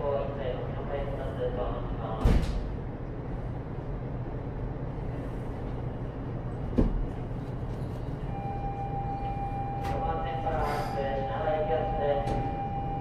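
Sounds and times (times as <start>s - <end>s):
train car interior hum: 0.0s - 13.0s.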